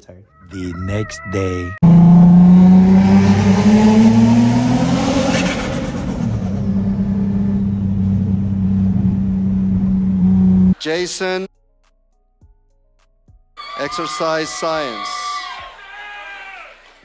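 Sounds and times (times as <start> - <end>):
car engine accelerating: 1.8 - 10.8.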